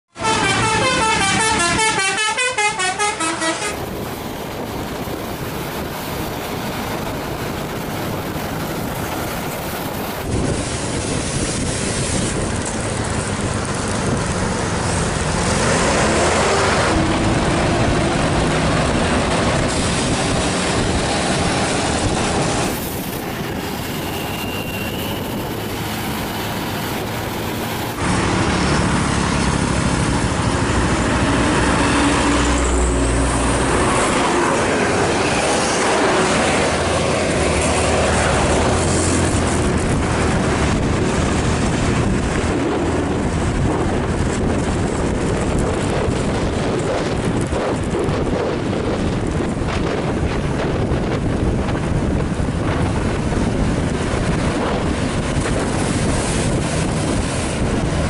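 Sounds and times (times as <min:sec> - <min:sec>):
bus engines: 0:00.1 - 0:58.0
road noise: 0:00.1 - 0:58.0
musical bus horn tune: 0:00.2 - 0:03.8.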